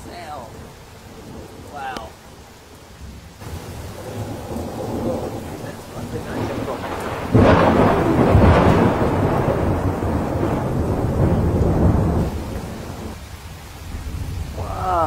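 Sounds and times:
loud thunderclap: 3.4s - 13.2s
thunder rolling: 3.4s - 13.2s.

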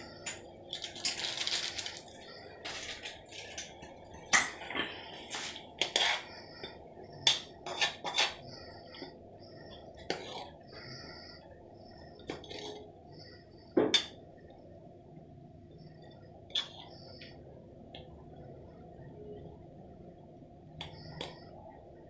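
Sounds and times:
spoon scraping metal pot: 5.4s - 6.3s, 7.2s - 8.4s, 10.0s - 10.6s, 12.3s - 12.9s.

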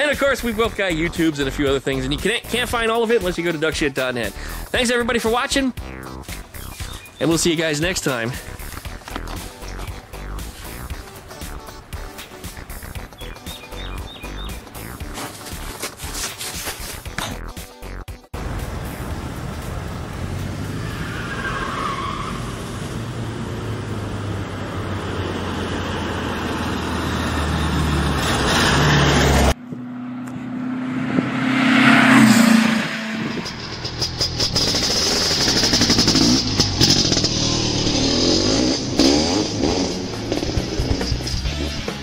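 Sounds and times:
car engine and road noise: 0.0s - 42.0s
car passing: 18.4s - 41.8s.

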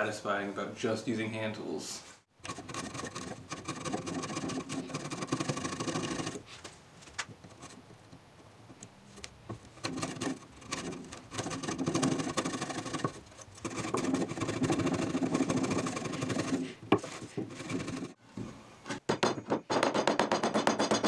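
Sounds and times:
wood chisel scraping: 2.4s - 8.2s, 9.1s - 18.2s.

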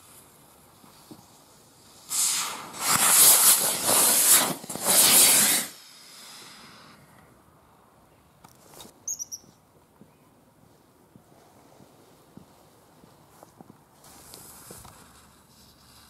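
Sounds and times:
rocket motor hissing: 1.2s - 7.1s.

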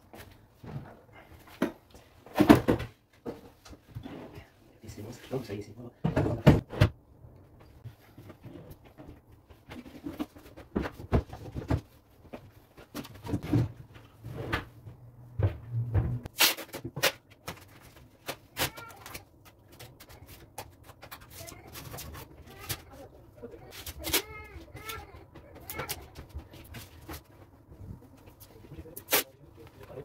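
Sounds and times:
wooden drawers knocking and clicking: 6.0s - 7.0s.

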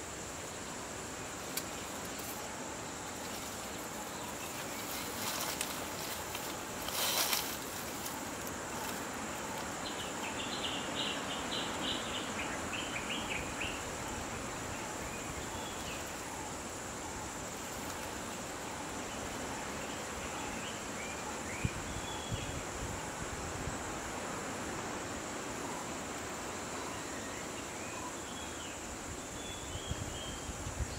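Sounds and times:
outdoor ambience: 0.0s - 30.9s
brief rustle: 4.8s - 9.0s.

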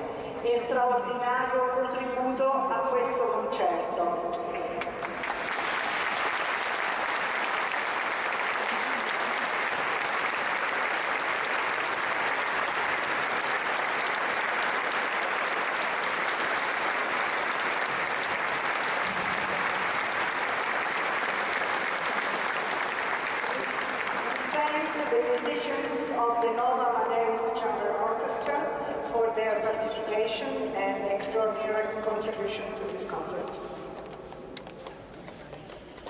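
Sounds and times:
audience applauding: 5.0s - 25.6s.

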